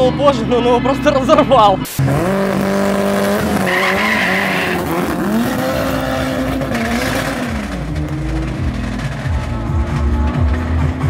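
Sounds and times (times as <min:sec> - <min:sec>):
racing car engine revving: 0:01.8 - 0:11.0
tyre squeal: 0:03.4 - 0:10.2.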